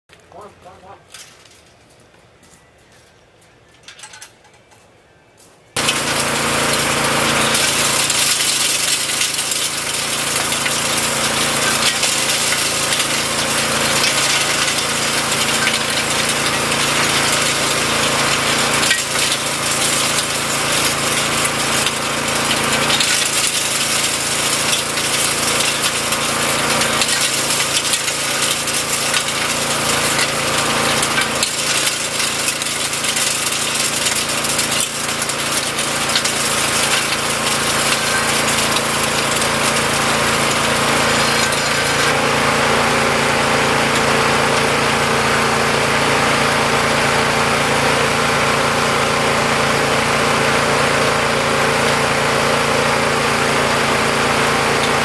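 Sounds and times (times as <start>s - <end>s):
engine humming: 0.1s - 55.0s
rock crusher clattering: 5.8s - 42.2s, 43.3s - 47.1s, 53.2s - 55.0s.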